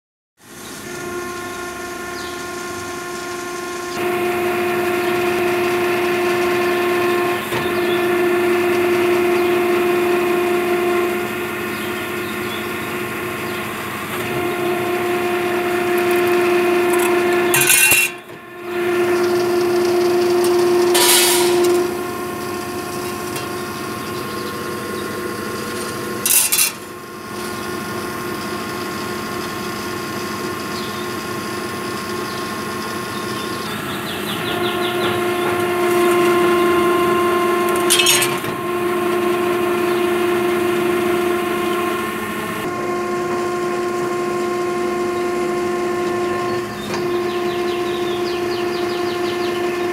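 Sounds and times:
hydraulic machine hum and whine: 0.4s - 49.9s
steel plate being sheared: 14.2s - 24.3s, 25.6s - 26.9s, 34.5s - 41.7s.

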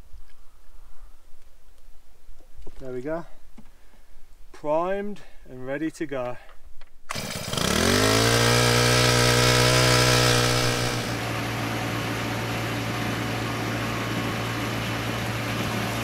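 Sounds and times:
small pump engine running: 7.1s - 16.0s.

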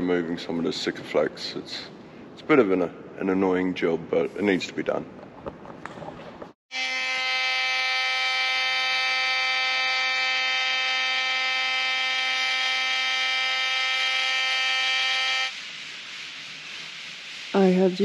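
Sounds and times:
oscillating multi-tool buzzing: 6.7s - 16.0s.

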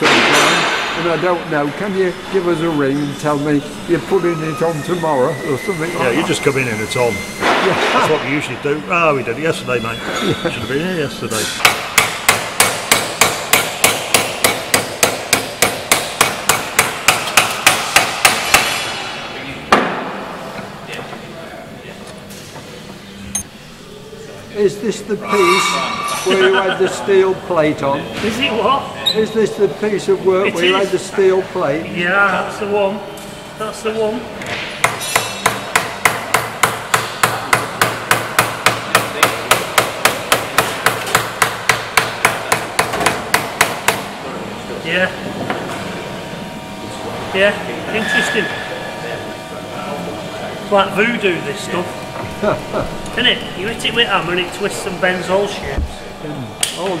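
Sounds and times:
hammer beating sheet metal: 0.0s - 1.2s, 11.4s - 19.1s, 34.8s - 44.1s.

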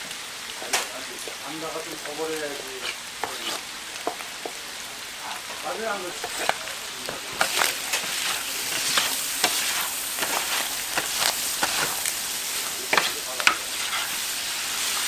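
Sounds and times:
meat sizzling on a griddle: 0.0s - 15.0s
metal scraper scraping steel: 12.9s - 14.1s.

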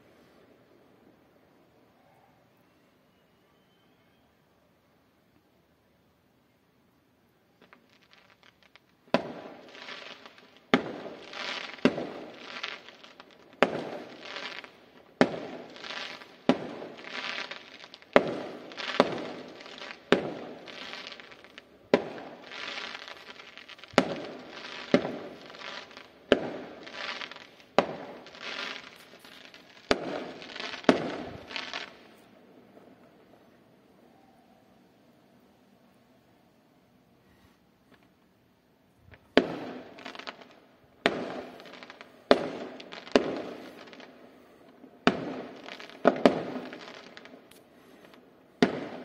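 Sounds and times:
fireworks bursting: 7.4s - 35.5s, 39.0s - 49.0s.

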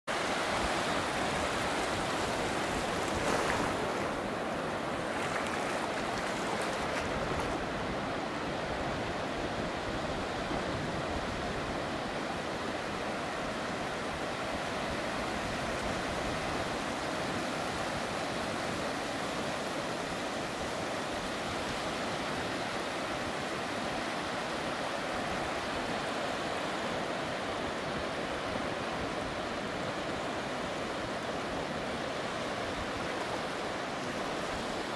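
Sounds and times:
small waves breaking on beach: 0.1s - 34.9s.

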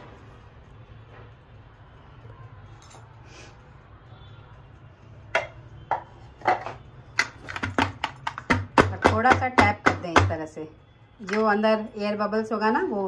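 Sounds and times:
baking tin knocking on counter: 5.4s - 10.5s.

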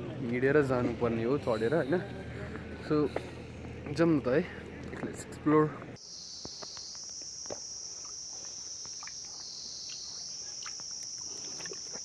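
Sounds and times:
insects droning shrilly: 6.0s - 12.0s.

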